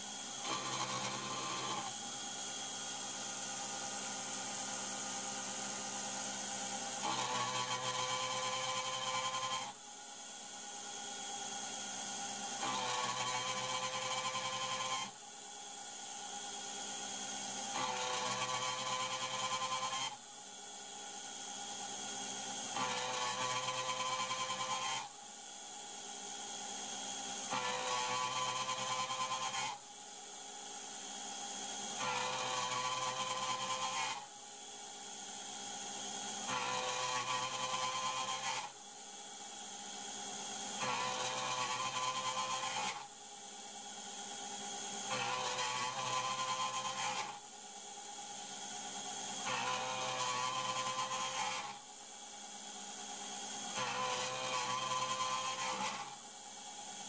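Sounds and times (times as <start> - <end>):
milling machine hissing whine: 0.0 - 57.0
milling machine cutting steel: 0.1 - 3.8, 49.4 - 51.8, 53.6 - 57.0.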